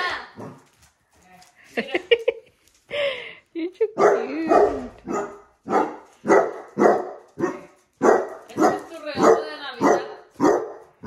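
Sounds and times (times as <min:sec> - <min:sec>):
dog barking deeply: 0:04.0 - 0:10.8
drawn-out dog bark: 0:04.0 - 0:11.0.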